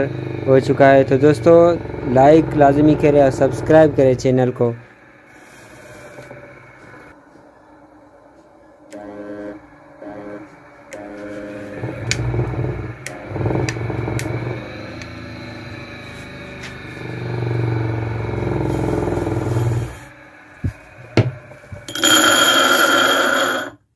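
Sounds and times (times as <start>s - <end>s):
bench grinder motor humming: 0.0s - 7.1s, 8.9s - 23.8s
harsh noise with ringing tones: 0.0s - 23.9s
motor clicks: 11.8s - 15.8s.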